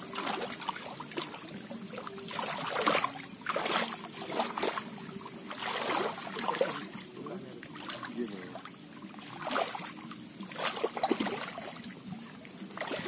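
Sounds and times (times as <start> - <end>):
legs wading through muddy water: 0.0 - 13.0.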